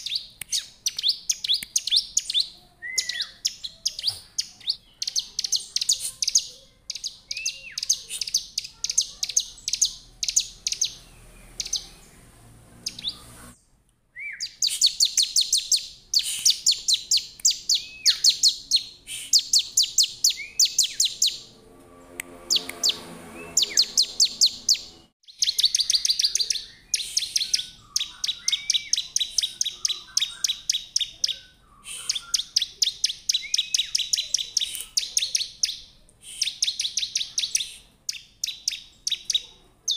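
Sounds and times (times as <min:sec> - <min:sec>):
bird singing rapid high chirps: 0:00.0 - 0:13.6, 0:14.2 - 0:39.9.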